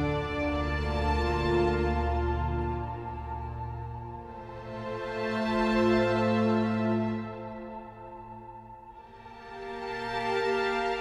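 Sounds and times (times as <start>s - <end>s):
sustained background music chords: 0.0s - 11.0s.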